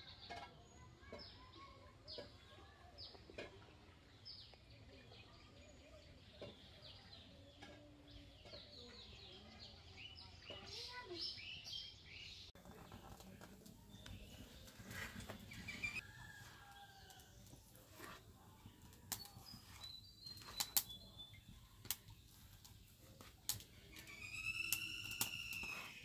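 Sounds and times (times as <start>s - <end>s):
leaves being handled: 12.6s - 26.0s
stalks snapping: 20.5s - 21.0s.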